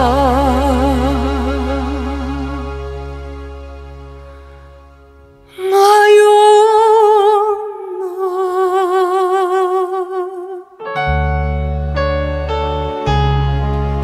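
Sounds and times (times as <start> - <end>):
deep bass and keyboard chords: 0.0 - 5.5, 10.8 - 14.0
singer holding note with vibrato: 5.5 - 10.8.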